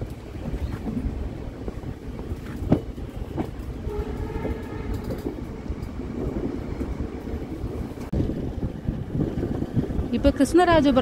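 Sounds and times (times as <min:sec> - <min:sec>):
train rumbling at speed: 0:00.0 - 0:11.0
train wheels knocking: 0:01.6 - 0:10.0
faint locomotive horn: 0:03.8 - 0:05.4.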